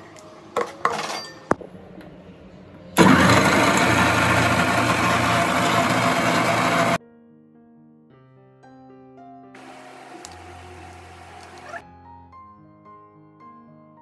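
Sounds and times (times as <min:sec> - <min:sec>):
mixer grinder whirring: 0:03.0 - 0:07.0, 0:09.6 - 0:11.8.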